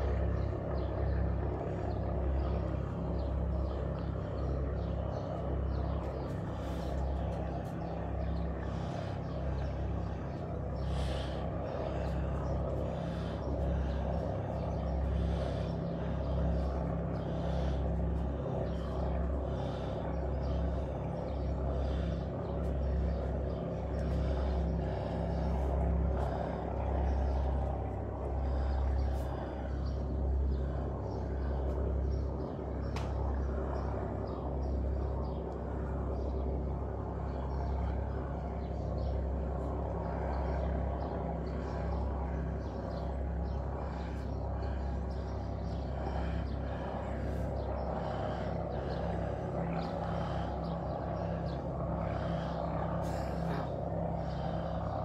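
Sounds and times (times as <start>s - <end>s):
low outdoor rumble: 0.0s - 55.0s.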